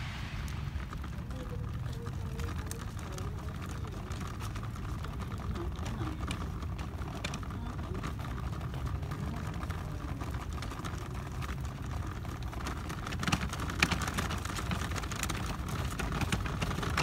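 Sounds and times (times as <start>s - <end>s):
low rumbling noise: 0.0s - 4.3s.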